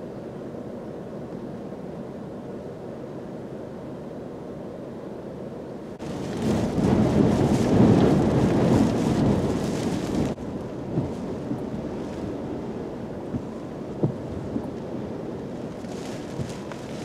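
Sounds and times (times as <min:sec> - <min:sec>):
hurricane wind gusting: 0:05.8 - 0:17.0
driving rain: 0:06.0 - 0:17.0
surge water rushing: 0:06.0 - 0:17.0.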